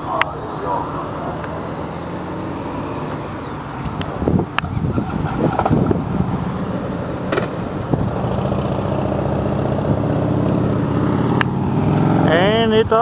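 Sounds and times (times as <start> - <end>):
heavy truck engines droning: 0.0 - 13.0
sharp clicks: 11.3 - 12.1.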